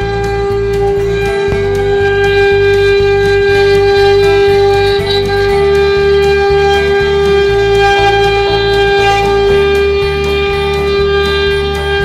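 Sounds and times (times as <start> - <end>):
lower tones shifting: 0.0 - 12.0
router spindle whining: 0.0 - 12.0.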